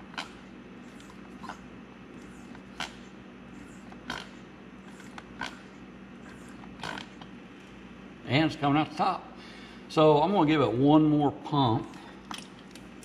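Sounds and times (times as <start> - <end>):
hand pump strokes: 2.2 - 7.3.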